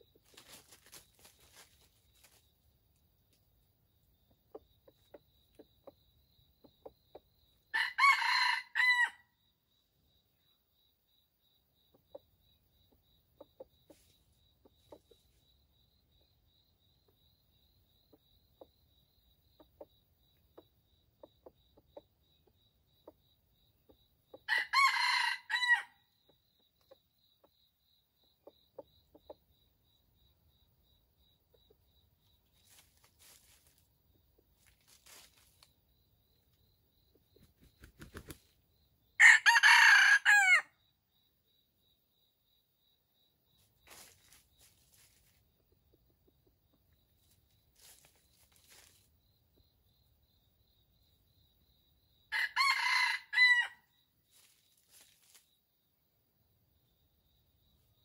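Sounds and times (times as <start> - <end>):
soft clucks: 4.3 - 7.4, 11.9 - 15.4, 18.0 - 24.5, 28.3 - 29.5
rooster crowing: 7.7 - 9.3, 24.5 - 26.0, 39.2 - 40.7, 52.3 - 53.9.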